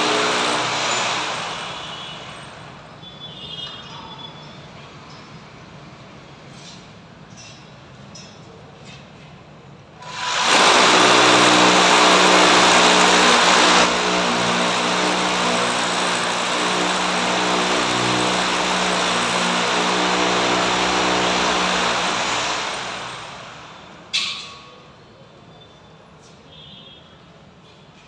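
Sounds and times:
electric drill boring into concrete: 0.0 - 1.9, 10.0 - 24.1.

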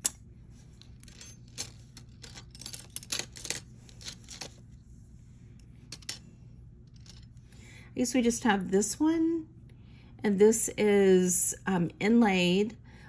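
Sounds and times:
jewelry clinking and clicking: 0.0 - 4.6, 5.9 - 6.2.

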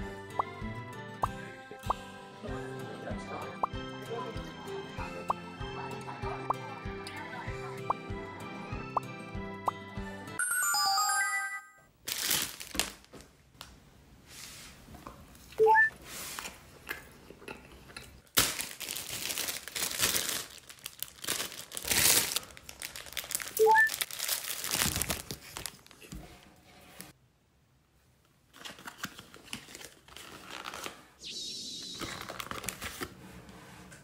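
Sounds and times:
crunching and chewing fried food: 18.2 - 26.0.

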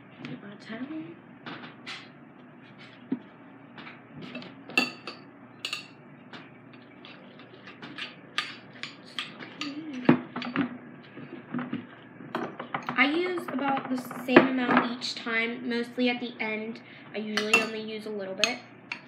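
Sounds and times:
utensils clinking against counter: 4.3 - 6.0, 17.4 - 17.8.

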